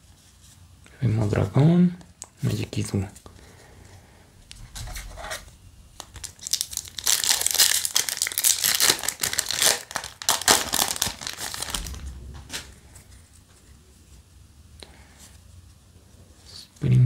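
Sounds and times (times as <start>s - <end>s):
foil wrapper crinkling and tearing: 6.0s - 12.0s.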